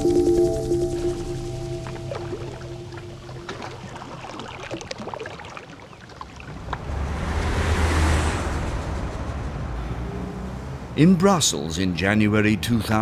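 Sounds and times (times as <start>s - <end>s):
low steady hum: 0.0s - 5.1s
sea water washing: 0.0s - 8.7s.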